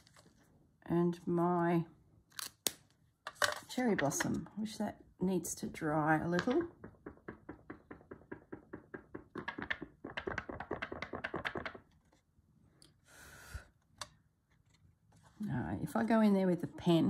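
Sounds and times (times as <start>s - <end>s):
rapid tapping on a cutting mat: 6.5s - 11.8s.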